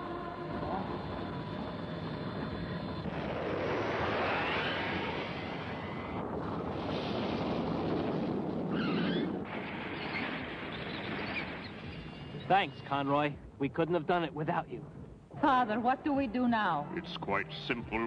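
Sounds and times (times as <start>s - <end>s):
spacecraft engines: 0.0s - 13.0s
explosion rumble: 0.5s - 12.6s.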